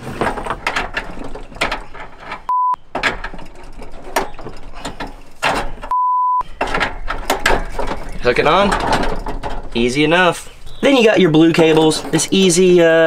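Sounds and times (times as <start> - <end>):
metal fitting clicking and scraping: 0.2 - 12.8
censor bleep: 2.5 - 2.8, 5.9 - 6.4.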